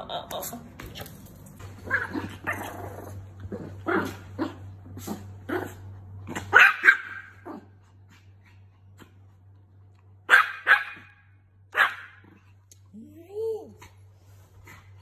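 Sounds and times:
small dog barking: 6.4 - 7.6, 10.3 - 12.3.

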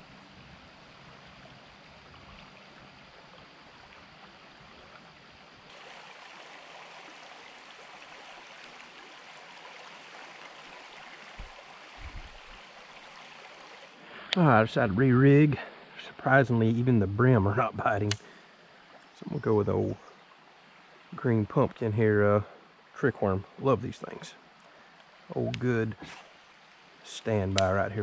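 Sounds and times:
river current rippling: 0.0 - 28.0.

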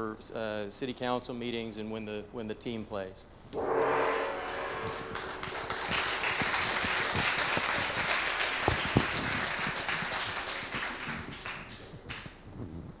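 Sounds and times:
audience applause: 5.4 - 12.2.

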